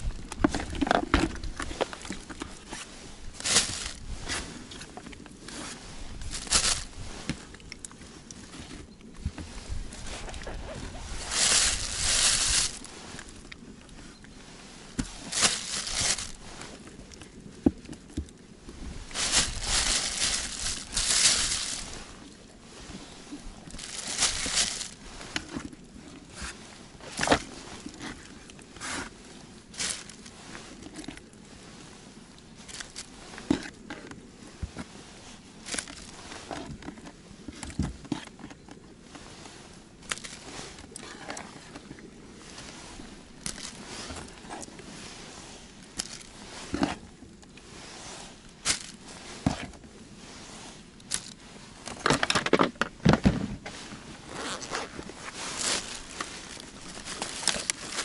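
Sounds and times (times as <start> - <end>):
plastic bag rustling: 0.7 - 7.6, 8.7 - 13.7, 14.9 - 28.3, 29.7 - 31.2, 32.6 - 33.2, 48.4 - 49.2, 53.8 - 58.0.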